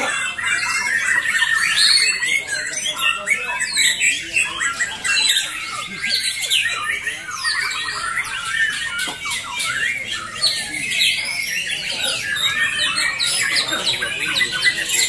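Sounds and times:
many songbirds singing: 0:00.0 - 0:15.0.

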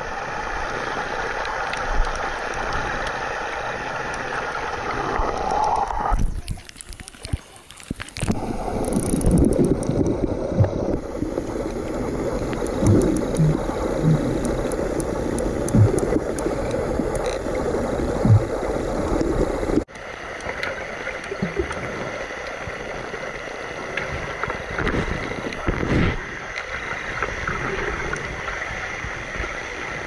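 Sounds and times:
muffled underwater rush: 0:00.0 - 0:30.0
faint ticks: 0:05.2 - 0:11.0, 0:12.4 - 0:17.5.

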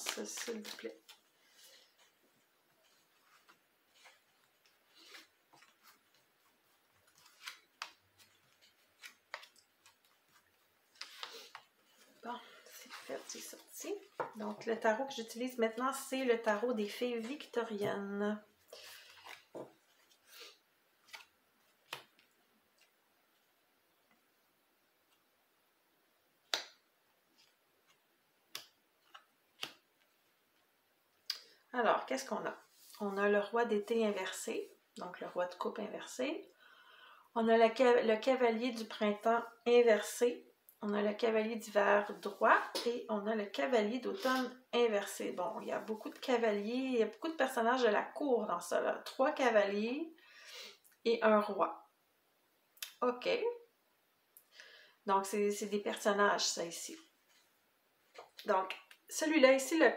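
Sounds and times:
cards sliding and snapping: 0:07.1 - 0:08.0, 0:08.6 - 0:10.1, 0:10.9 - 0:11.7, 0:21.1 - 0:21.3, 0:21.9 - 0:22.3, 0:27.4 - 0:29.8.

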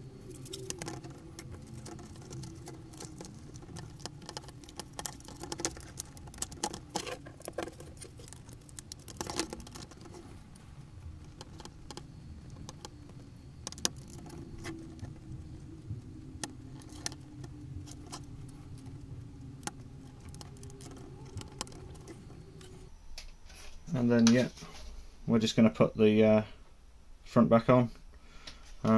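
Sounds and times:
plastic parts clicking and scratching: 0:00.2 - 0:22.9.

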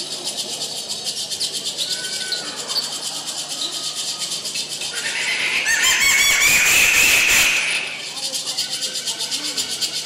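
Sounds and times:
rattle shaking: 0:07.9 - 0:10.0.

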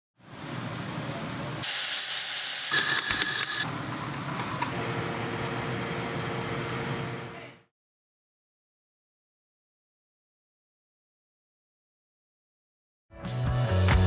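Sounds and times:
steam hissing: 0:01.6 - 0:03.6
espresso machine humming: 0:04.6 - 0:07.4.

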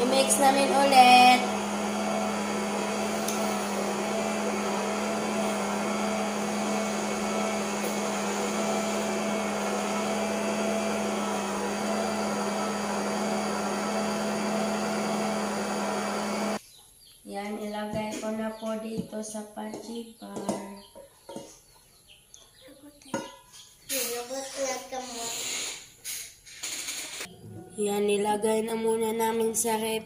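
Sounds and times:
electric stand mixer humming: 0:00.0 - 0:16.6.

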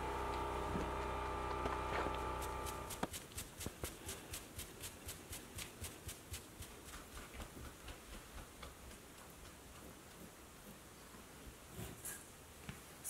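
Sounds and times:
steady hum: 0:00.0 - 0:03.1.

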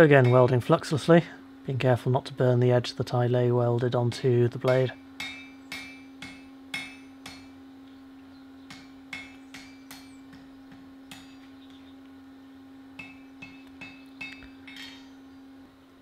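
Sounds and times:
hammer blows on anvil ringing: 0:00.0 - 0:00.7, 0:04.1 - 0:07.6, 0:08.7 - 0:11.6, 0:13.0 - 0:15.3
steady low hum: 0:00.0 - 0:16.0.

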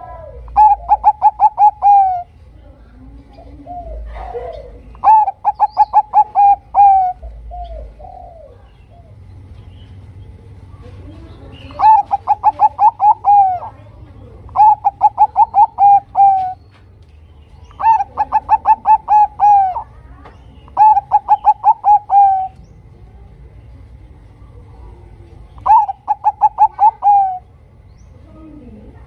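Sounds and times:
dove cooing: 0:00.0 - 0:02.4, 0:03.0 - 0:09.3, 0:11.0 - 0:16.7, 0:17.6 - 0:22.7, 0:24.6 - 0:29.0.

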